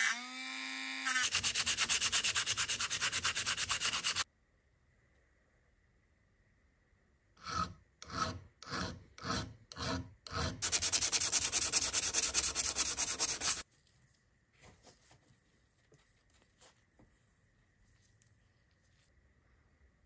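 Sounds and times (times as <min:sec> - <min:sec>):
sandpaper rubbing on metal: 0:01.2 - 0:04.2, 0:10.6 - 0:13.6.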